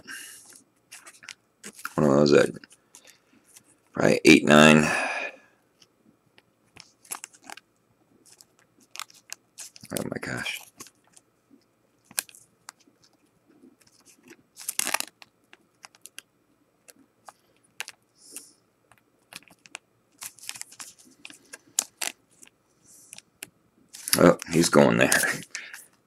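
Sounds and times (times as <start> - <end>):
plastic sleeve crinkling: 0.4 - 3.7, 6.7 - 7.6, 8.2 - 11.2, 12.0 - 16.2, 16.8 - 18.5, 19.2 - 23.3, 23.9 - 25.9.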